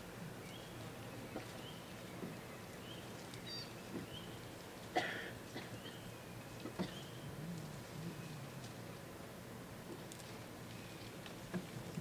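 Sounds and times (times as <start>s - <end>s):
bird chirping: 0.4s - 4.5s.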